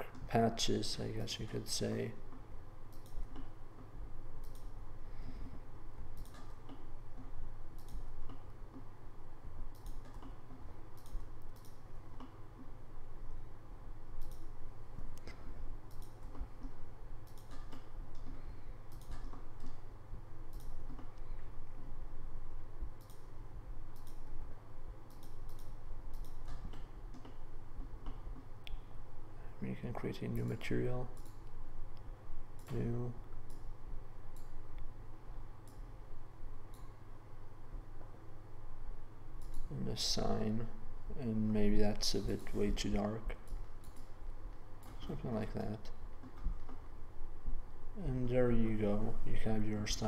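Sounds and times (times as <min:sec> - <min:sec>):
low steady hum: 0:00.0 - 0:50.0
computer mouse clicking: 0:02.3 - 0:04.8, 0:06.1 - 0:08.9, 0:09.6 - 0:12.8, 0:14.1 - 0:19.8, 0:20.5 - 0:21.4, 0:23.0 - 0:23.3, 0:23.9 - 0:24.4, 0:25.0 - 0:28.8, 0:31.1 - 0:33.7, 0:34.3 - 0:34.9, 0:35.6 - 0:35.9, 0:36.7 - 0:37.0, 0:39.4 - 0:39.7, 0:42.2 - 0:45.0.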